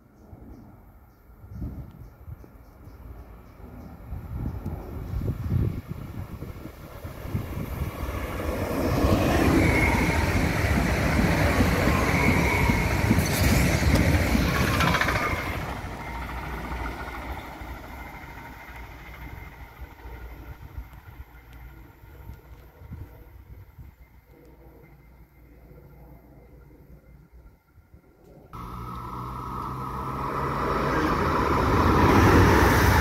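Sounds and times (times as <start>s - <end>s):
train wheels rumbling on rails: 3.3s - 24.1s, 28.6s - 33.0s.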